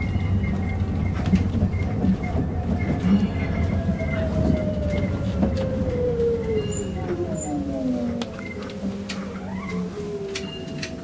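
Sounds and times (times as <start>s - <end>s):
bus low rumble: 0.0s - 11.0s.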